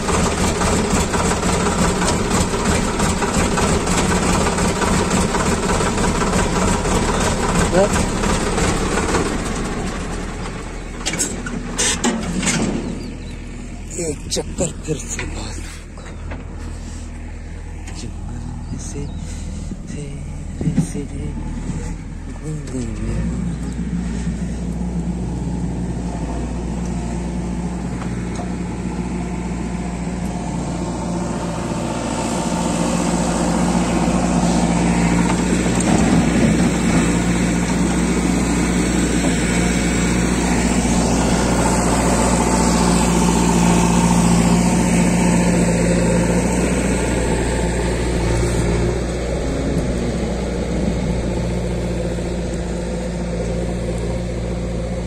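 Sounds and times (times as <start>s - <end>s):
backhoe loader working: 0.0s - 55.0s
tractor engine idling: 0.0s - 55.0s.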